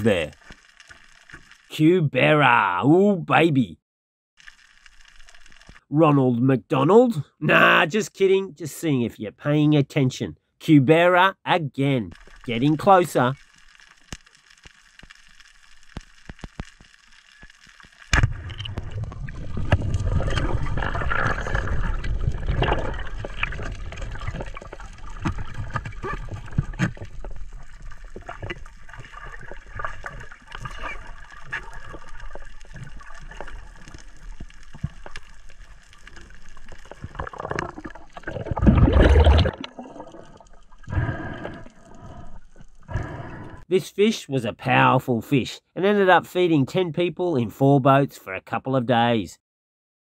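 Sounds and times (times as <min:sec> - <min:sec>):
water churning underwater: 0:12.1 - 0:43.7.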